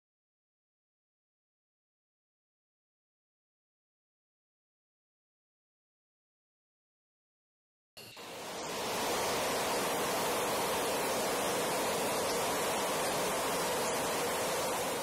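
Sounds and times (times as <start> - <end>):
jet engine in afterburner: 8.2 - 15.0.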